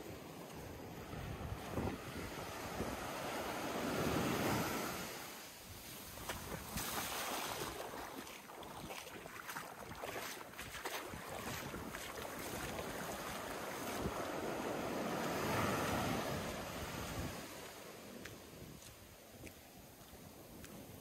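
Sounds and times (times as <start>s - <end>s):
small waves washing over sand: 0.0s - 21.0s
wind buffeting microphone: 1.0s - 4.7s, 9.8s - 17.5s.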